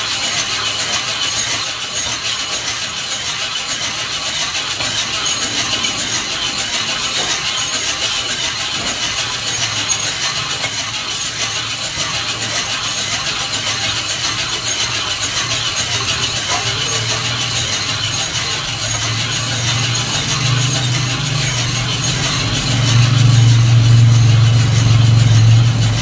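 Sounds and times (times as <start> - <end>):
coffee beans rattling in drum roaster: 0.0 - 26.0.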